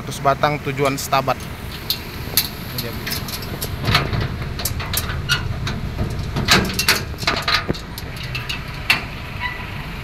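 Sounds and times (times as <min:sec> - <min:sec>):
truck engine idling: 0:00.0 - 0:10.0
knocks and clicks: 0:01.4 - 0:09.2.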